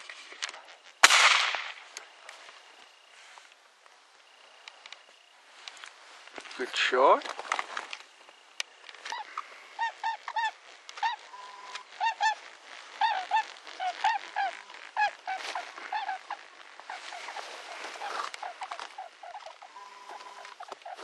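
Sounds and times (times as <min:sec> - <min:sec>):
rustling: 0:00.0 - 0:21.0
geese honking: 0:09.0 - 0:21.0.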